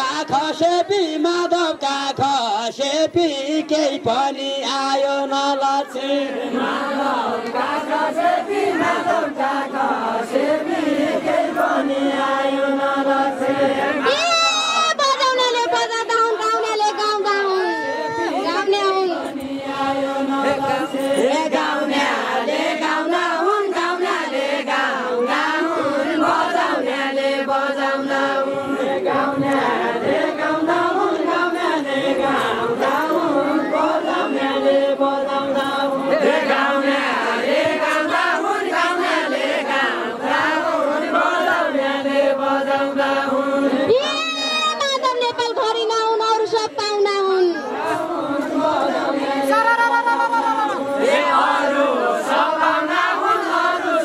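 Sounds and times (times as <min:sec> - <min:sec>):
many voices singing folk song: 0:00.0 - 0:16.3, 0:17.7 - 0:44.7, 0:47.5 - 0:54.0.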